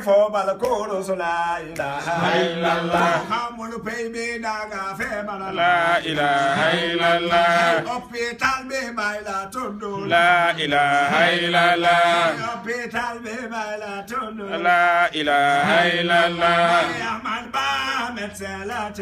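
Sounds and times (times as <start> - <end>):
men chanting: 0.0 - 19.0.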